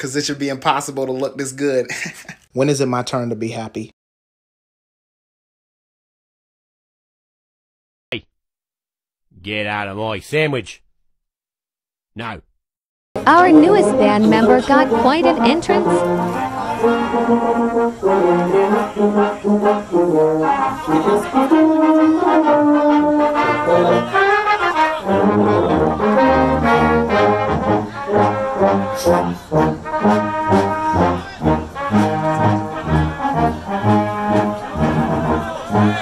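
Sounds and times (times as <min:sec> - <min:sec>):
rhythmic low brass notes: 0:13.2 - 0:36.0
trumpets and horns playing tune: 0:13.2 - 0:36.0.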